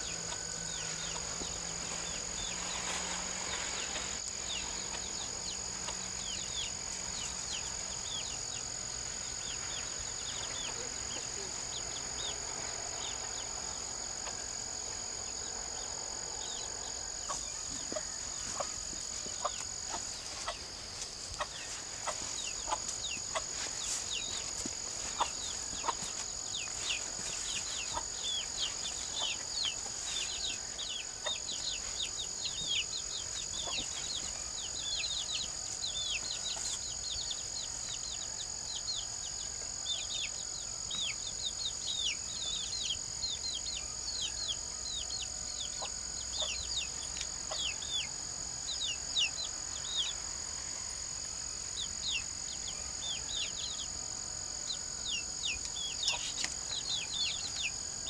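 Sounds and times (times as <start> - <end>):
chickens clucking: 0.0 - 15.1, 16.4 - 34.4, 55.5 - 57.8
chicks peeping: 0.0 - 39.0, 39.9 - 48.1, 54.7 - 57.8
high insect drone: 0.0 - 58.0.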